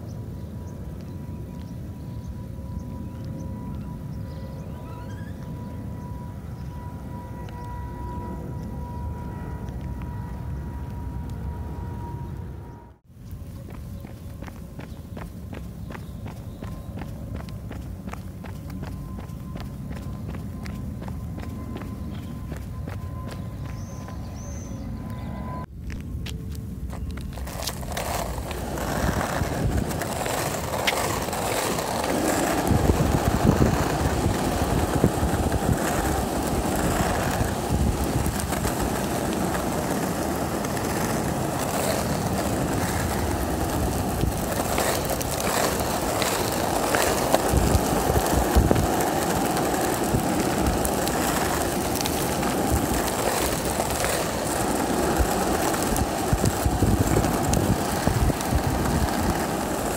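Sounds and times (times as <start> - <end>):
skateboard wheels rolling on asphalt: 0.0 - 59.9.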